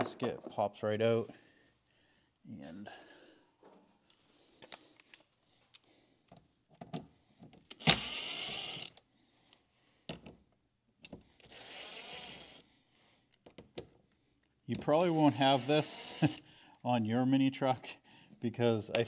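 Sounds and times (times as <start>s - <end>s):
clicks and knocks of handling parts: 3.6s - 8.0s, 8.9s - 11.4s, 13.3s - 15.1s.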